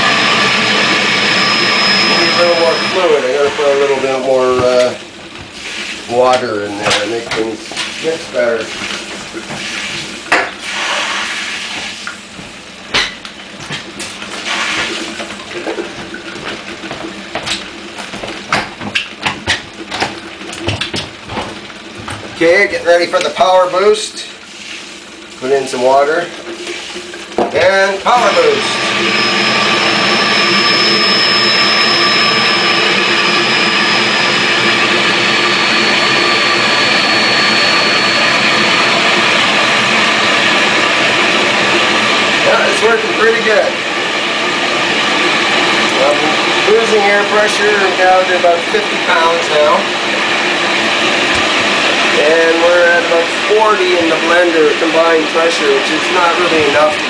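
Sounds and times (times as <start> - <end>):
blender motor humming: 0.0 - 5.6, 26.4 - 57.0
thin high whine: 0.0 - 12.2, 25.4 - 57.0
water rushing through turbine: 0.0 - 12.2, 19.7 - 57.0.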